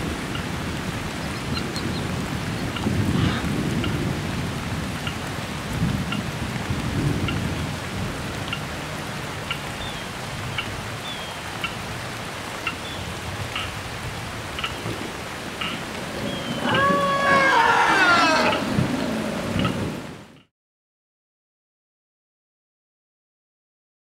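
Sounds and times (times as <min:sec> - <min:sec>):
deep thunder rumble: 0:00.0 - 0:09.3, 0:13.0 - 0:20.3
rain hissing: 0:00.0 - 0:20.4.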